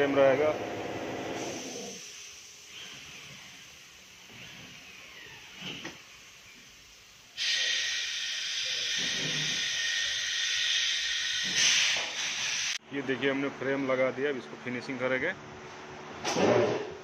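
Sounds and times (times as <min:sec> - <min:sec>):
faint workshop sounds: 0:00.0 - 0:17.0
loud steady hiss: 0:06.2 - 0:12.8.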